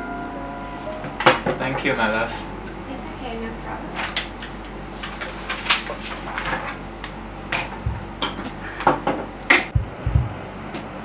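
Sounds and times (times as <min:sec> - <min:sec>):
paper rustling: 0:04.0 - 0:06.8
dull thumps: 0:07.7 - 0:10.4.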